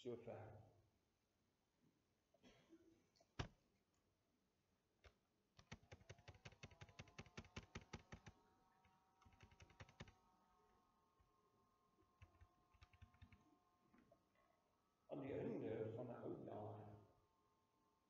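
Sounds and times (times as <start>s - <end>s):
computer keyboard typing: 5.6s - 8.4s, 9.2s - 10.2s, 12.2s - 13.4s.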